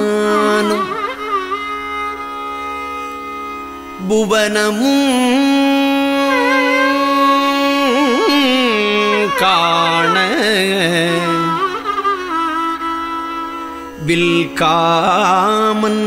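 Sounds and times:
person singing devotional verse: 0.0s - 1.1s, 4.0s - 11.7s, 14.0s - 16.0s.

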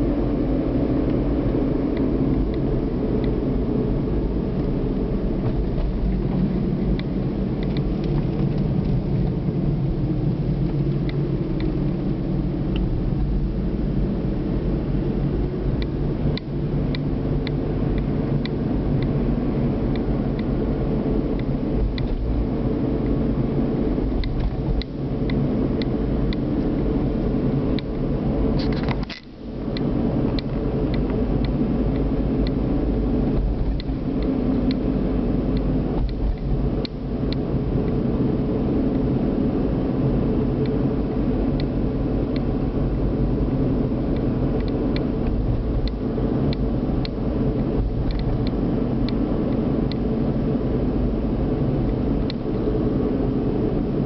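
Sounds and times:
car engine and road rumble: 0.0s - 54.0s
faint light ticks: 47.8s - 50.0s, 52.2s - 52.6s.

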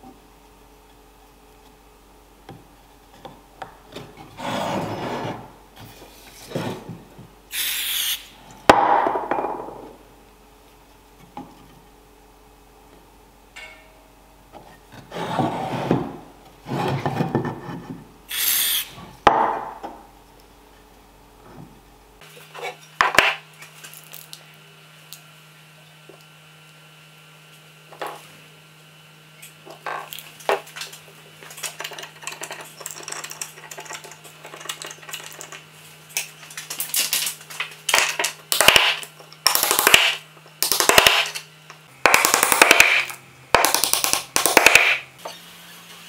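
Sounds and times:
wood blocks scraping boards: 3.9s - 7.0s, 14.9s - 18.8s
aerosol spray hiss: 7.5s - 8.2s, 18.3s - 18.9s.

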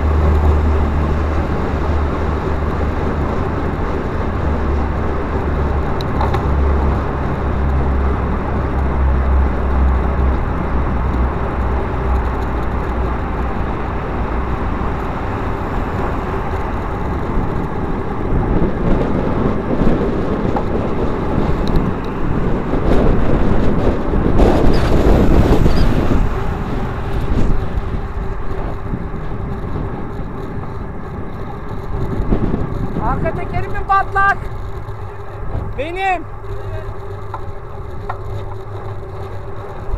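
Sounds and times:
motor traffic: 0.0s - 39.9s
wind and tyre noise: 0.0s - 39.9s.

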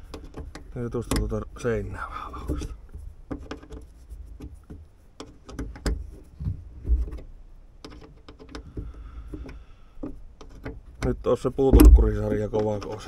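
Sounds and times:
dull knocks: 11.6s - 12.7s.

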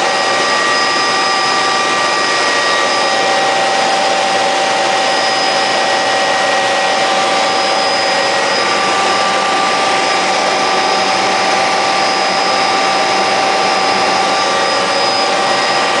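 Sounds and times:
helicopter turbine whine: 0.0s - 16.0s
rotor and airflow rush: 0.0s - 16.0s.

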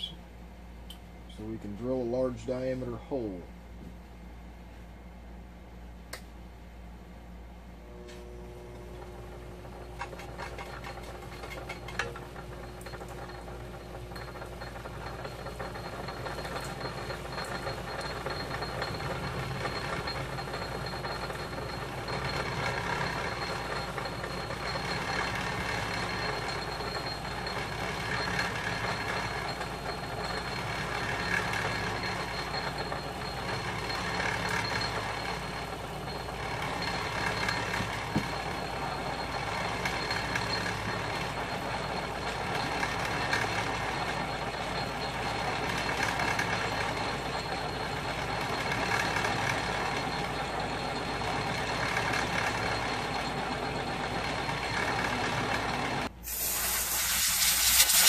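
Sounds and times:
metal lathe motor humming: 7.8s - 56.2s
drill cutting metal: 54.2s - 58.0s.

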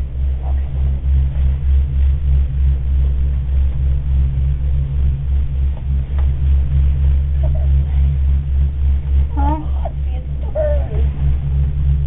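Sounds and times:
vehicle cabin rumble: 0.0s - 12.0s.

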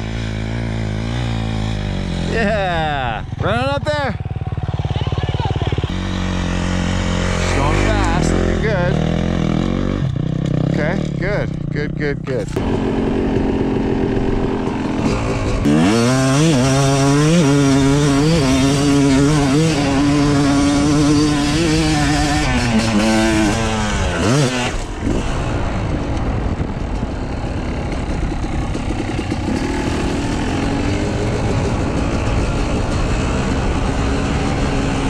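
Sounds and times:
dirt bike engine revving: 0.0s - 35.0s
steady rushing noise: 12.2s - 35.0s.

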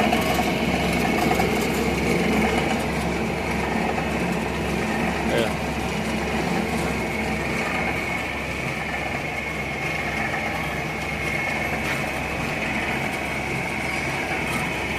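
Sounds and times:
chamfering machine whining: 0.0s - 14.9s.

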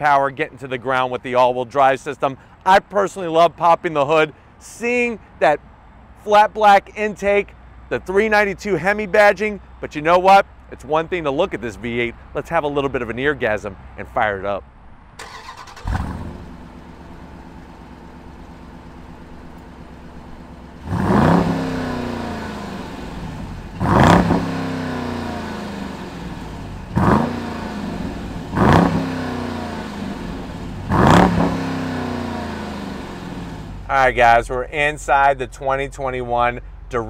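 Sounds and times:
car engine revving: 15.2s - 33.9s
car engine starting and idling: 15.2s - 36.6s.

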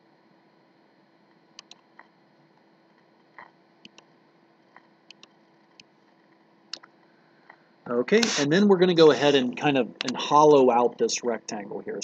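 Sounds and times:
low steady hum: 0.0s - 12.0s
computer mouse clicks: 1.6s - 2.1s, 3.4s - 4.1s, 5.1s - 5.9s.

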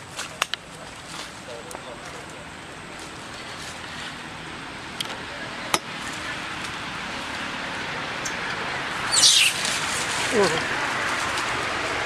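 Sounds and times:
monkey high-pitched squeal: 9.1s - 9.7s.

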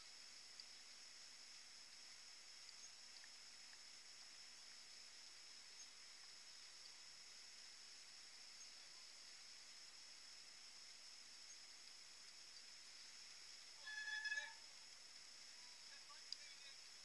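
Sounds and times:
tiny ticks: 0.0s - 7.0s, 10.8s - 13.7s, 14.7s - 17.0s
faint high-pitched hiss: 0.0s - 17.0s.

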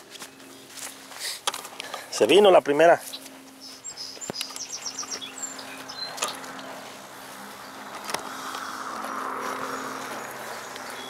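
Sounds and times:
bird chirps: 3.0s - 6.8s, 7.5s - 11.0s
steady low hum: 3.0s - 11.0s.

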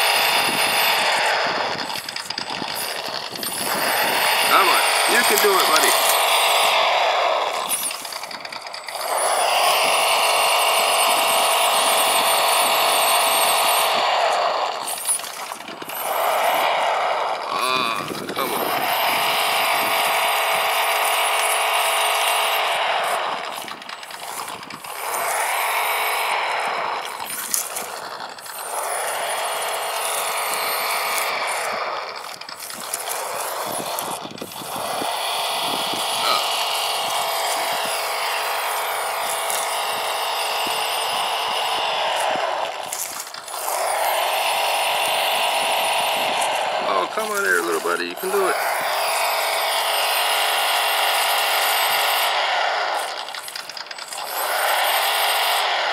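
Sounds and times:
simulated truck engine from speaker: 0.0s - 15.0s, 17.2s - 40.0s, 46.4s - 48.8s
electric motor and gears whining: 0.0s - 55.9s.

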